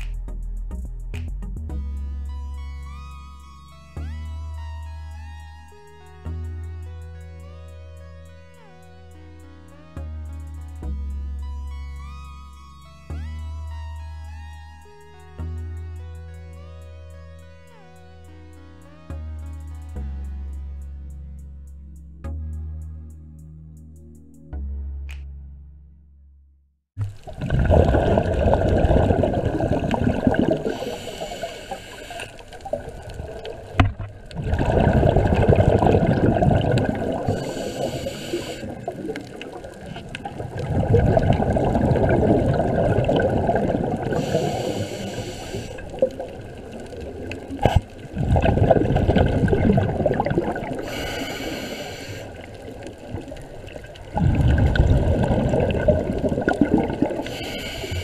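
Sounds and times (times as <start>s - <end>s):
bubbling exhalation underwater: 27.0s - 31.0s, 32.6s - 37.7s, 38.7s - 44.8s, 45.9s - 51.0s, 52.4s - 57.8s
regulator inhalation hiss: 29.5s - 33.5s, 35.7s - 40.0s, 44.0s - 48.1s, 50.7s - 54.0s, 57.1s - 58.0s.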